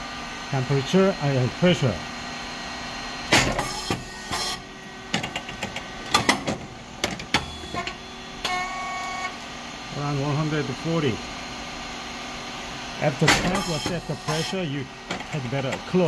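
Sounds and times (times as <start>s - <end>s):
machine humming: 0.0s - 16.0s
sharp clicks and knocks: 5.1s - 8.0s, 15.1s - 15.9s.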